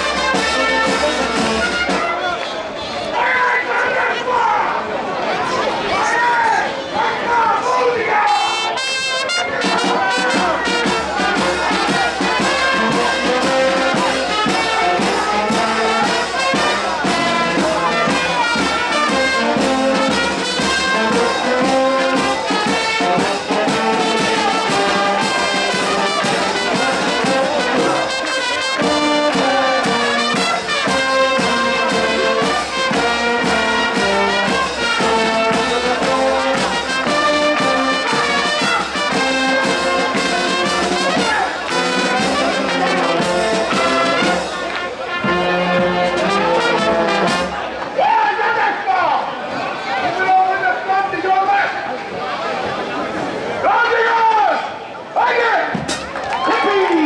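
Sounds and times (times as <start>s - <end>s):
brass band playing: 0.0s - 4.1s, 7.7s - 48.6s.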